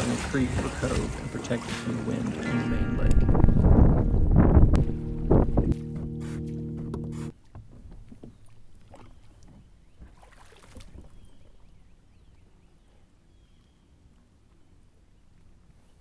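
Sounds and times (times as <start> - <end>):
wind and water rumble: 0.0 - 16.0.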